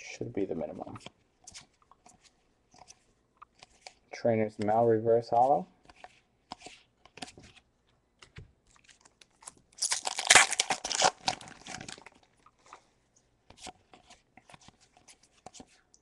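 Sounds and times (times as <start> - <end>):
foil pack crinkling and tearing: 8.8 - 12.2.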